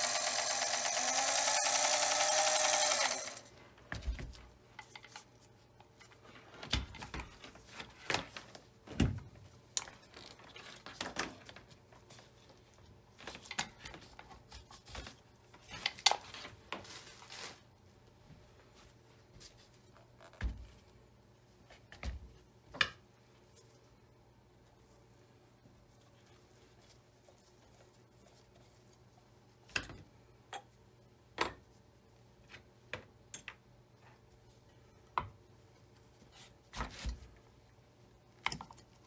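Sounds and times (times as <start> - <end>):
sewing machine motor whirring: 0.0 - 3.5.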